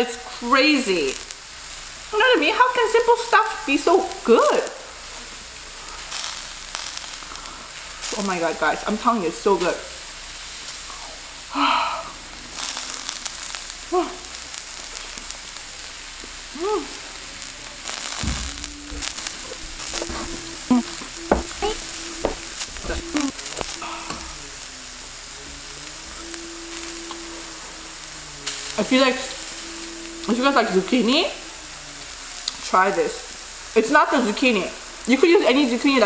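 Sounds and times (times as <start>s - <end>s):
vegetables sizzling on a griddle: 0.0s - 36.0s
person humming: 16.5s - 33.3s
chewing: 16.9s - 30.4s, 31.4s - 32.7s.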